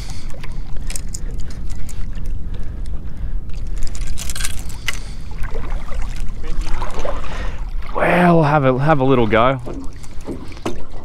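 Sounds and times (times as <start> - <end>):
water splashing from wading: 5.0 - 11.0.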